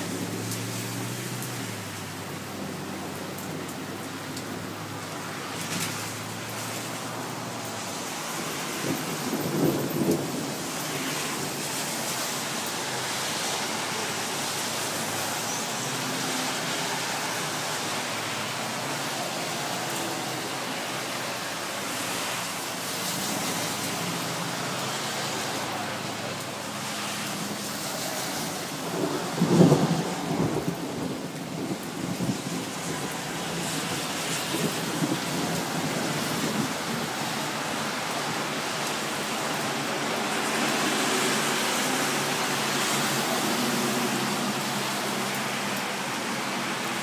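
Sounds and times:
steady rain falling: 0:00.0 - 0:47.0
thunder rolling: 0:28.8 - 0:33.0.

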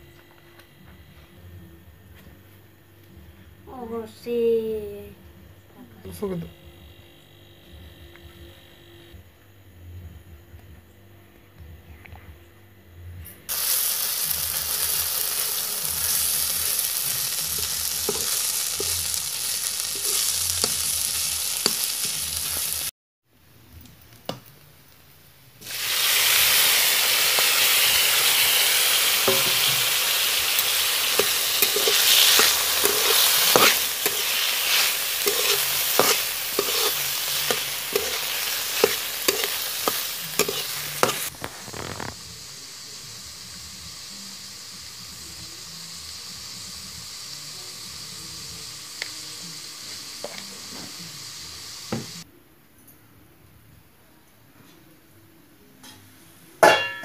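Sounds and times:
sizzling in hot oil: 0:13.5 - 0:22.9, 0:25.6 - 0:52.2.

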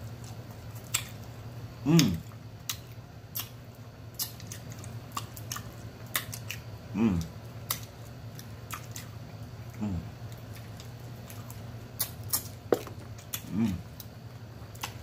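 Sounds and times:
chewing and lip-smacking: 0:00.1 - 0:01.4, 0:02.0 - 0:15.0
voiced mm: 0:01.8 - 0:02.3, 0:06.9 - 0:07.4, 0:13.3 - 0:14.0.

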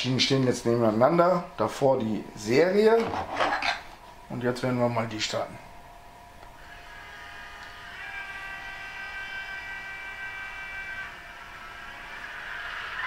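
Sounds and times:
high-pitched whine: 0:04.3 - 0:13.0.

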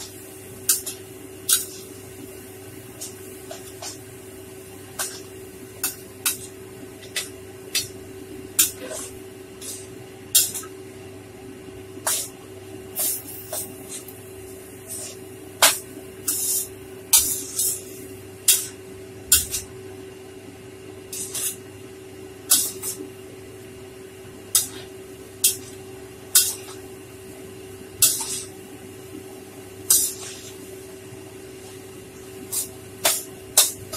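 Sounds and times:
metal utensils scraping a wok: 0:29.9 - 0:30.6.

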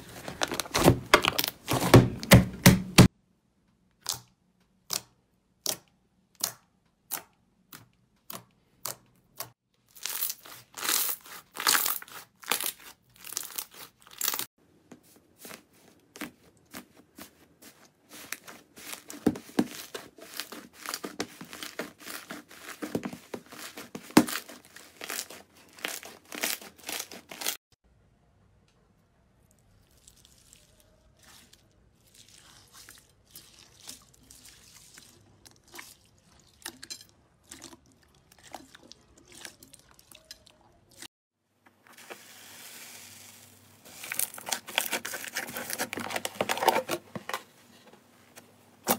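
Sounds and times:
slime crackling and crinkling: 0:00.0 - 0:02.2, 0:09.8 - 0:27.6, 0:29.7 - 0:36.6, 0:41.9 - 0:46.9.

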